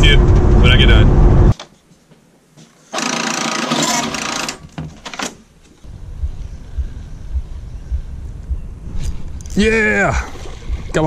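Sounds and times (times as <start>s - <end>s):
wind rumble on microphone: 5.9s - 11.0s.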